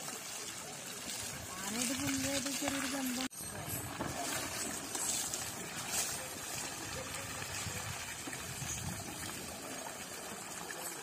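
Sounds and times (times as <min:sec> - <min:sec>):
water running and splashing: 0:00.0 - 0:11.0.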